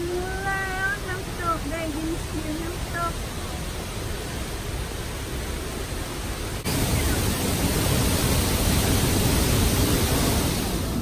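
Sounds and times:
waterfall plunging into pool: 3.4s - 11.0s.

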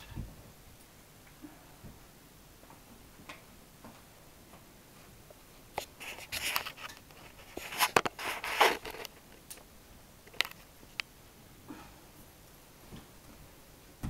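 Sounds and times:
mop head scraping and rubbing: 6.0s - 9.1s.

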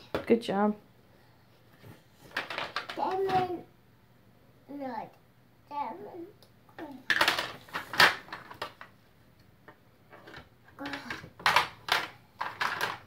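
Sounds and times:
plastic blocks clacking: 2.3s - 3.4s, 6.8s - 8.9s, 10.1s - 13.0s.

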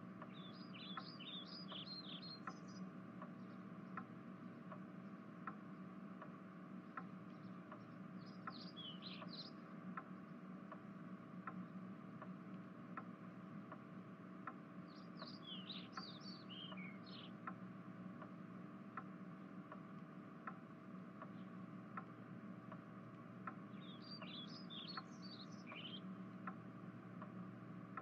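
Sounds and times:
faint steady ticking: 0.0s - 28.0s
low steady hum: 0.0s - 28.0s
bird chirps: 0.2s - 4.6s, 7.3s - 9.7s, 14.8s - 17.4s, 23.7s - 26.1s.

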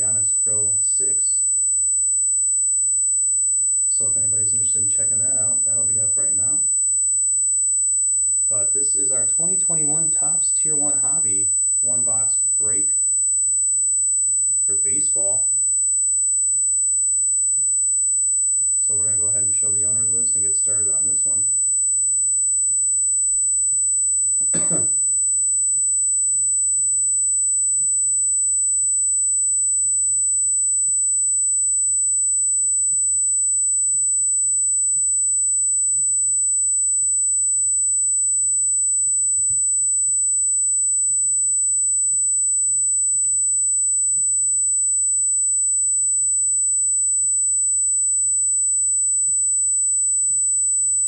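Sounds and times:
faint low hum: 0.0s - 1.5s, 3.9s - 6.8s, 8.4s - 13.0s, 18.9s - 21.6s, 24.4s - 25.0s
high-pitched electronic whine: 0.0s - 1.7s, 3.8s - 7.0s, 8.1s - 15.8s, 18.8s - 21.8s, 24.4s - 25.2s
person coughing: 24.4s - 25.0s.

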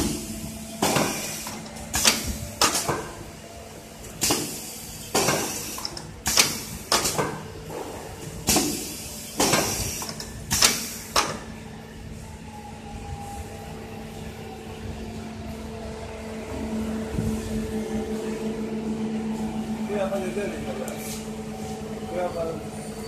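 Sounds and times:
pneumatic air hissing: 0.0s - 3.0s
steady machine hum: 0.0s - 23.0s.

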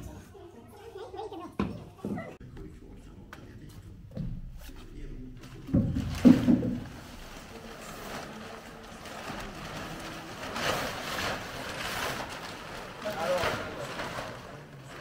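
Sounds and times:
plastic sheet rustling: 5.4s - 15.0s.

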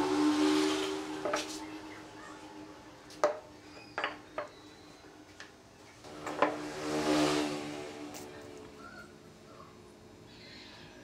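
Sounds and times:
wooden blocks knocking: 3.2s - 3.4s.

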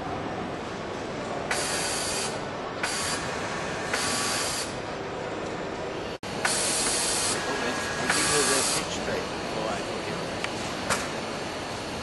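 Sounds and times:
sewing machine running in hissing bursts: 1.5s - 4.8s, 6.4s - 9.8s.

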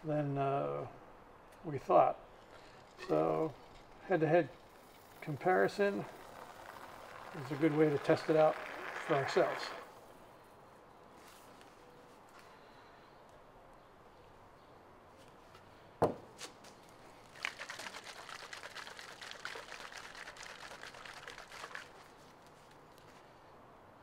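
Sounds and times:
spray can rattling and sloshing: 2.8s - 9.9s, 17.2s - 22.8s.

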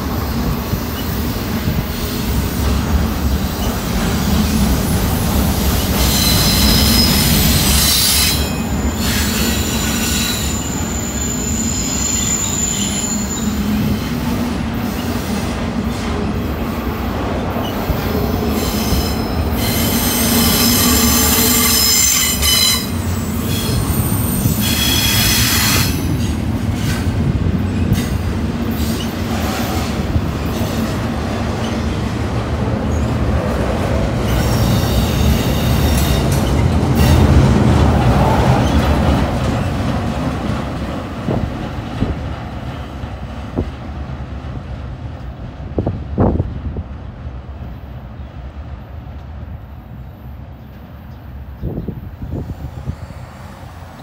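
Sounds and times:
train cars rumbling past: 0.0s - 54.0s
high-pitched wheel squeal: 5.8s - 13.9s, 18.6s - 26.1s.

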